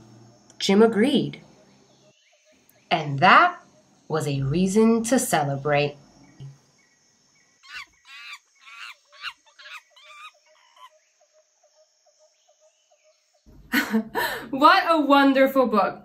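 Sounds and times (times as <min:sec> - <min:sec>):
short animal calls: 0:07.6 - 0:11.0.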